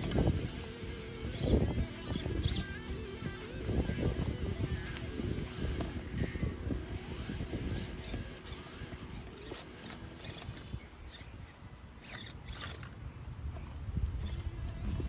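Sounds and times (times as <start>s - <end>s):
toy car motor and gears whirring: 0.0s - 15.0s
tyres clicking and scraping on stone: 7.5s - 13.0s.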